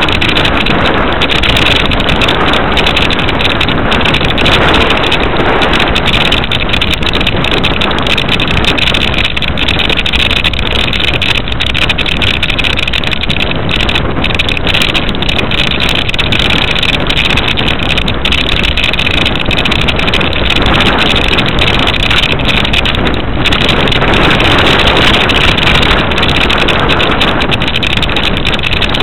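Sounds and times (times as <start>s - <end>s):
wind and road noise: 0.0s - 29.0s
wind buffeting microphone: 0.0s - 29.0s.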